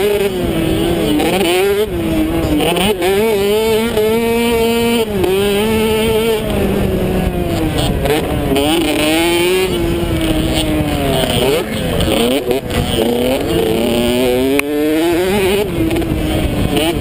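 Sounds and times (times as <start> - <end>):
motocross bike engine running hard: 0.0 - 17.0
wind rush on microphone: 3.7 - 17.0.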